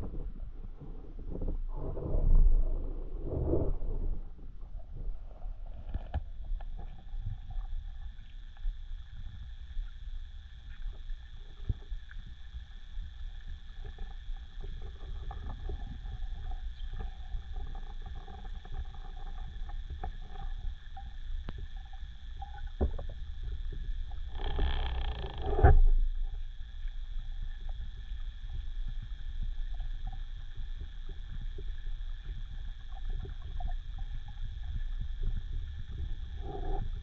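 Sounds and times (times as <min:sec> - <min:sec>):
underwater low rumble: 0:00.0 - 0:37.0
faint crackling clicks: 0:05.7 - 0:28.6.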